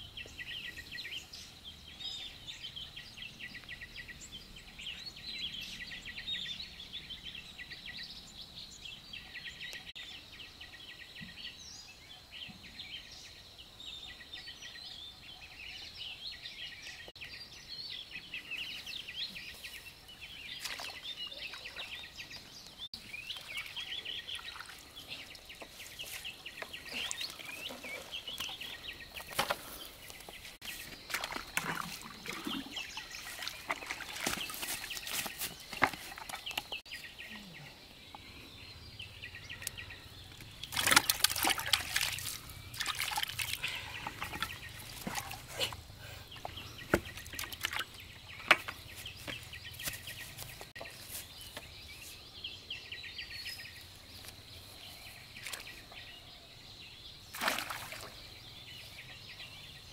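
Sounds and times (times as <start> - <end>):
birds chirping faintly: 0.0 - 59.9
water splashing and sloshing: 20.5 - 22.4, 23.0 - 36.8, 40.3 - 50.1, 57.3 - 58.4.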